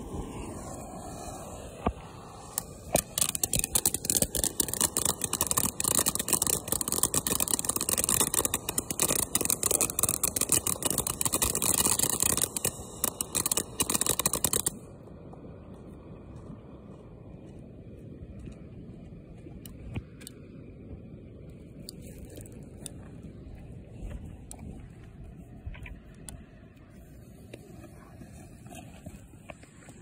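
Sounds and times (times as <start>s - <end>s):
firework fountain hissing and crackling: 0.0s - 15.0s.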